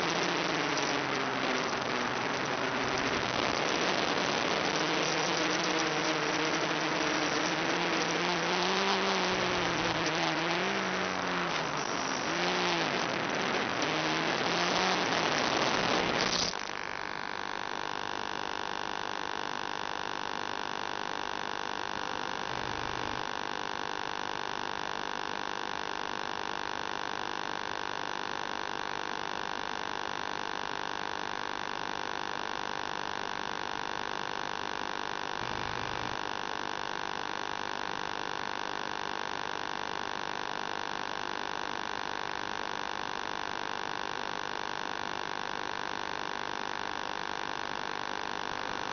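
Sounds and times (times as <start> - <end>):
loud static burst: 0.0 - 17.8, 35.3 - 36.3
steady electronic hum: 0.0 - 48.9.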